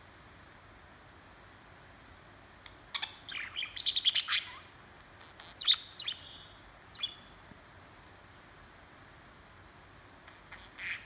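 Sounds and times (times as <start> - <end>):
budgerigar chirping: 3.0 - 4.6, 5.2 - 7.2, 10.5 - 11.0.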